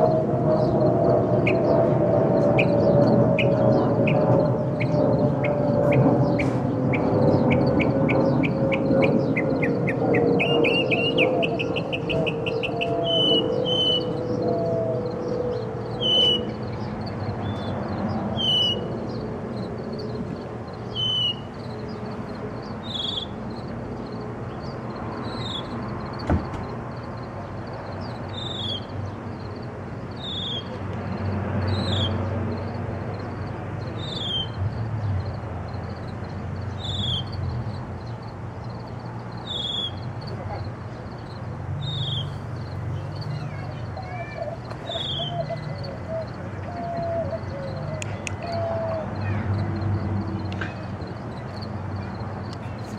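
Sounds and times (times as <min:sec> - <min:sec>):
bird singing clear notes: 0:02.4 - 0:17.8, 0:39.4 - 0:40.3, 0:41.2 - 0:50.6.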